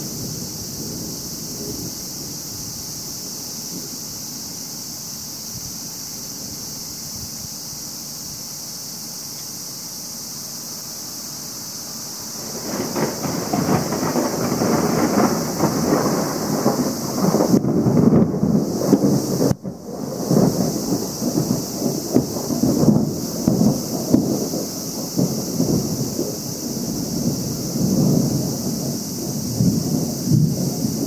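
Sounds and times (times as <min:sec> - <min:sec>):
thunder rumbling: 0:00.0 - 0:04.0, 0:12.4 - 0:31.0.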